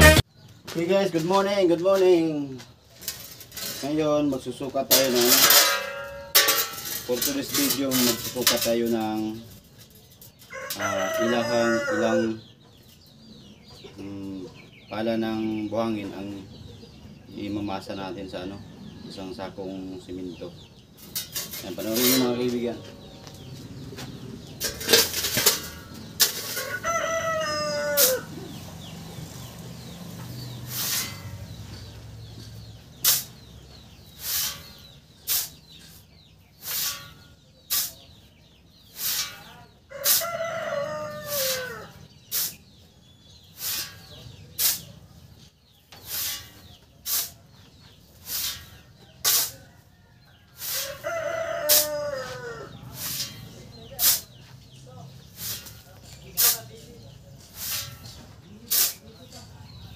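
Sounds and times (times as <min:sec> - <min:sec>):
rooster crowing: 0:10.5 - 0:12.4, 0:26.4 - 0:28.4, 0:39.9 - 0:42.0, 0:50.6 - 0:52.7
shovel digging into sand: 0:30.7 - 0:31.3, 0:33.0 - 0:33.4, 0:34.2 - 0:35.6, 0:36.6 - 0:38.0, 0:39.0 - 0:39.4, 0:42.3 - 0:42.6, 0:43.6 - 0:44.0, 0:44.6 - 0:44.9, 0:46.0 - 0:47.4, 0:48.2 - 0:49.6, 0:53.0 - 0:53.4, 0:54.0 - 0:54.3, 0:55.4 - 0:56.7, 0:57.5 - 0:58.1, 0:58.7 - 0:59.0.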